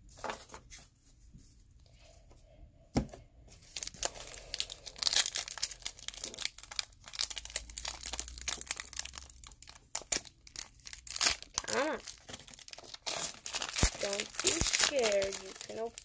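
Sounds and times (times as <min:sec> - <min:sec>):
foil wrapper crinkling and tearing: 0:03.7 - 0:16.0.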